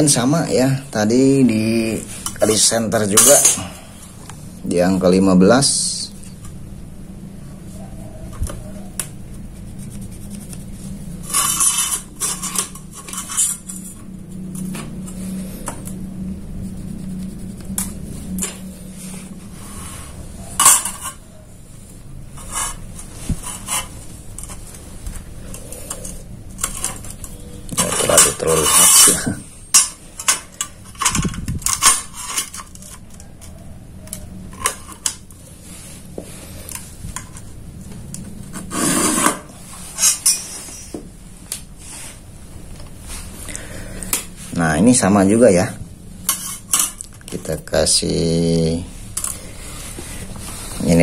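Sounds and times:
scraping clatters: 0:11.2 - 0:15.8.

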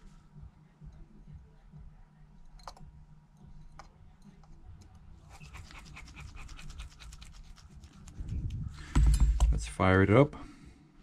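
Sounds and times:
low steady hum: 0:00.0 - 0:11.0.

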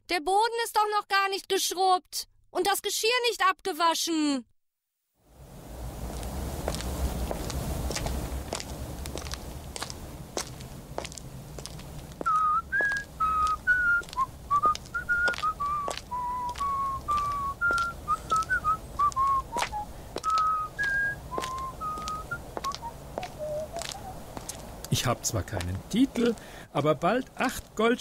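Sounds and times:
footsteps walking: 0:05.7 - 0:27.8
man whistling a tune: 0:12.3 - 0:24.2.

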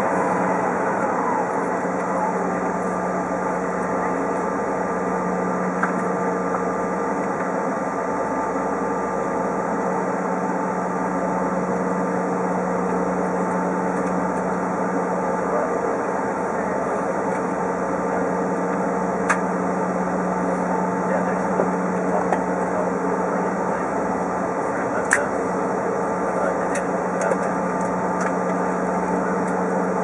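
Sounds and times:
aircraft cabin engine hum: 0:00.0 - 0:30.0.

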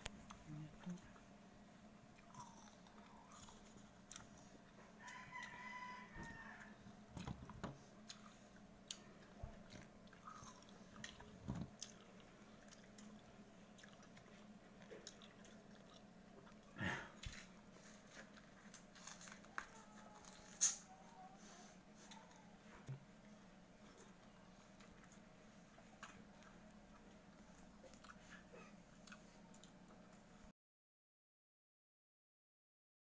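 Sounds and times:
crisp chewing and biting: 0:02.1 - 0:05.8, 0:06.5 - 0:20.9
distant rooster crowing: 0:04.8 - 0:07.4.

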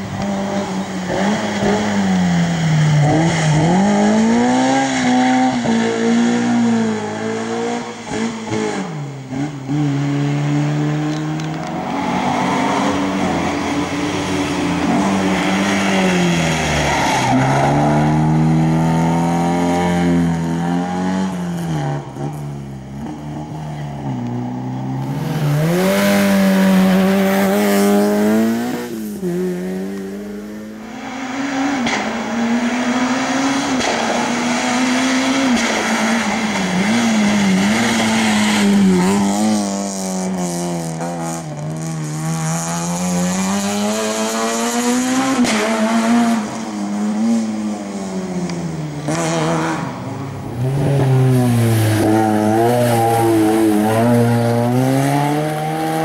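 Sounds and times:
rally car engines revving: 0:00.0 - 0:56.0
tyre squeal: 0:51.7 - 0:54.5.

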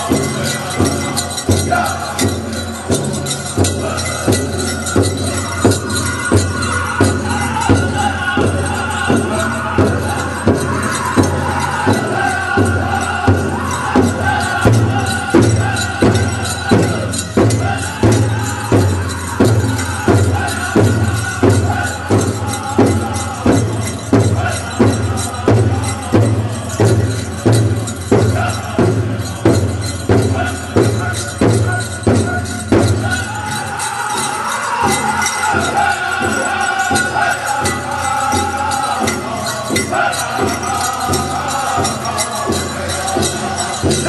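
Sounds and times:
group chanted singing: 0:00.0 - 0:44.0
large drum steady beat: 0:00.0 - 0:44.0.

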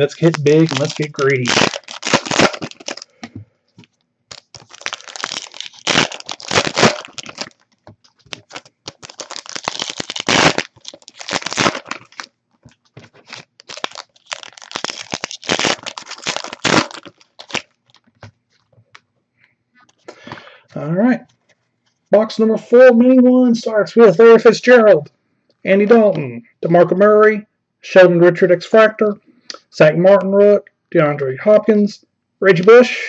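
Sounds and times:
wrappers tearing and crinkling: 0:00.0 - 0:03.2, 0:04.3 - 0:18.7.

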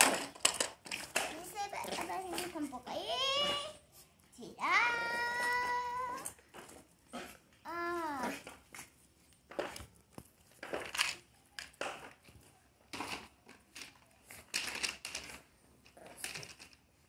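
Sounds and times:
dog scuffling with ball on concrete: 0:00.0 - 0:04.2, 0:04.9 - 0:16.5.

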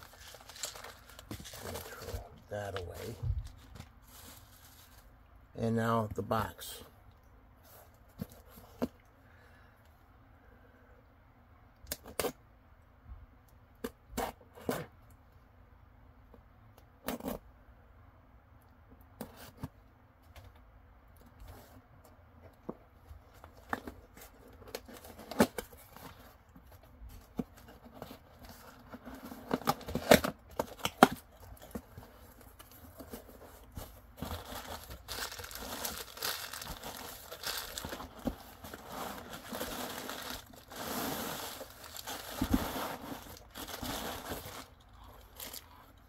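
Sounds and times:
cardboard box being opened: 0:00.0 - 0:02.2, 0:27.2 - 0:44.7
packing paper crinkling: 0:00.0 - 0:05.1, 0:27.7 - 0:45.8
packing tape tearing: 0:34.2 - 0:44.8.

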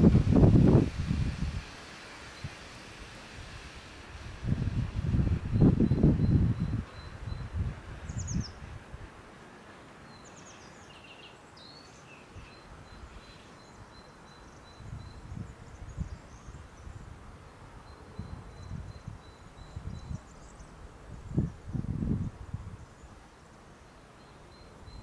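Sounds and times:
wind buffeting microphone: 0:00.0 - 0:09.3, 0:14.7 - 0:23.2
grass rustling in breeze: 0:00.0 - 0:25.0
small birds chirping: 0:05.5 - 0:08.6, 0:10.0 - 0:21.6.

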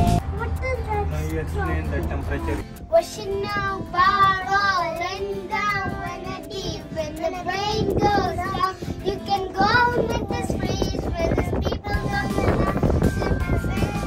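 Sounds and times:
child singing: 0:02.9 - 0:14.0.

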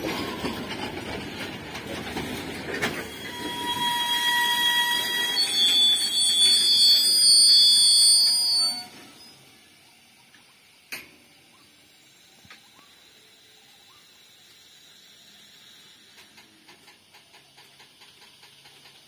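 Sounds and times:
train wheels squealing: 0:00.0 - 0:10.0, 0:11.6 - 0:19.0
train wagons rumbling: 0:00.0 - 0:10.7, 0:16.1 - 0:19.0.

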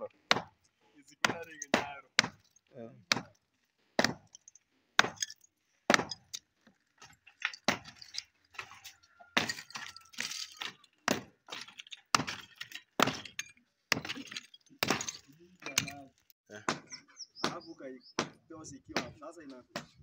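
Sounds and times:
broken tile pieces clinking: 0:06.1 - 0:16.3.

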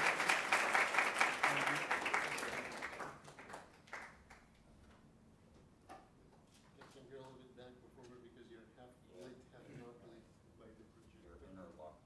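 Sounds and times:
audience applauding: 0:00.0 - 0:04.4.

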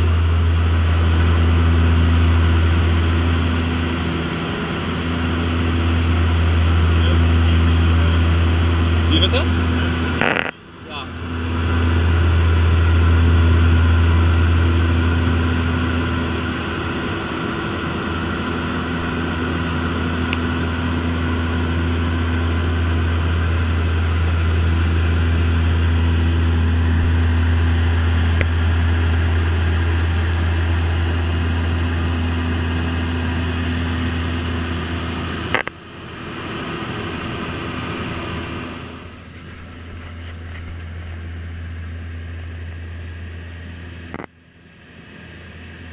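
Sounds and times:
propeller plane engine droning: 0:00.0 - 0:45.9.

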